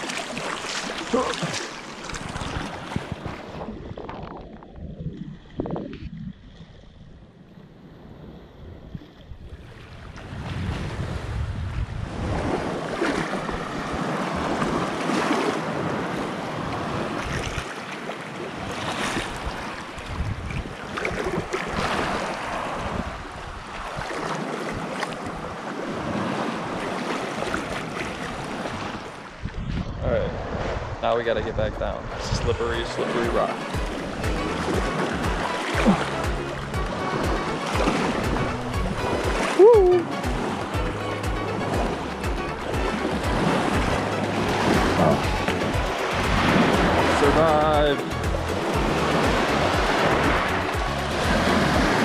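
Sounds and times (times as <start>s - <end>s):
waves lapping over rocks: 0.0s - 5.8s, 12.1s - 29.5s, 32.4s - 40.8s, 42.7s - 52.0s
wind rumbling on microphone: 0.6s - 17.8s, 18.4s - 40.8s.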